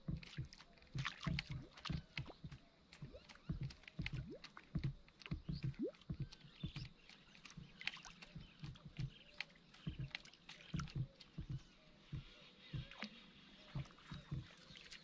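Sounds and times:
hollow knocks on plastic kayak hull: 0:00.0 - 0:07.1, 0:08.3 - 0:13.1
birds chirping: 0:00.0 - 0:15.0
water lapping against hull: 0:00.0 - 0:15.0.

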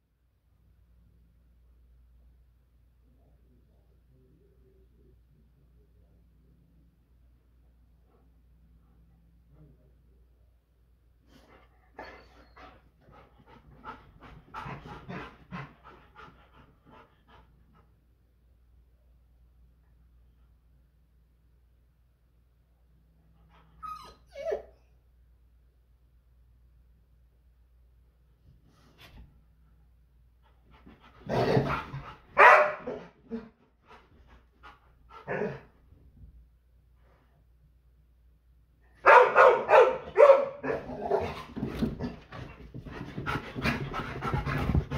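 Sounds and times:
dog panting: 0:11.4 - 0:18.0, 0:33.4 - 0:35.6, 0:41.3 - 0:44.9
dog barking: 0:32.4 - 0:33.1, 0:39.0 - 0:41.2.

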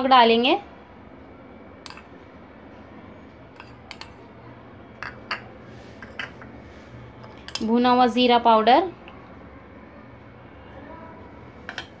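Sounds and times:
metal spoon clicking on ceramic bowls: 0:01.8 - 0:02.1, 0:03.6 - 0:04.2, 0:11.7 - 0:12.0.

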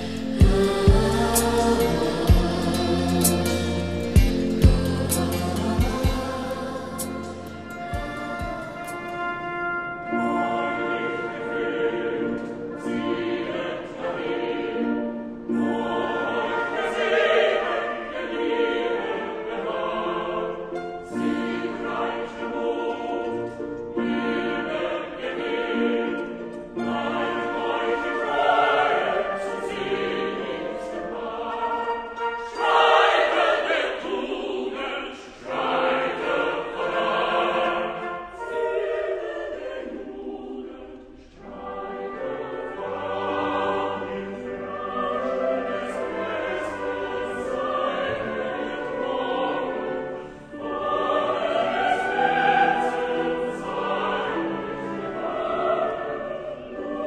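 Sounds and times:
choir singing: 0:00.0 - 0:57.0.

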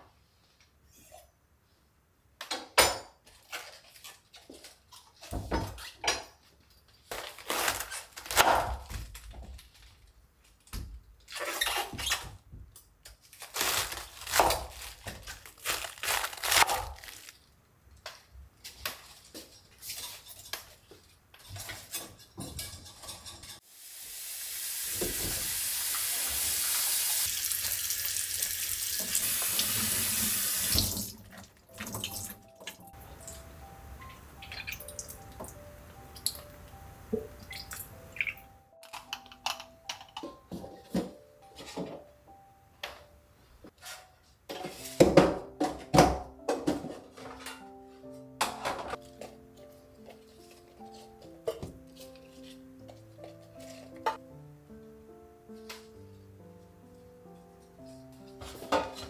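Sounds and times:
dishes clattering in sink water: 0:21.4 - 0:23.6, 0:44.5 - 0:47.7, 0:58.4 - 0:59.0
faucet running: 0:23.8 - 0:31.2.

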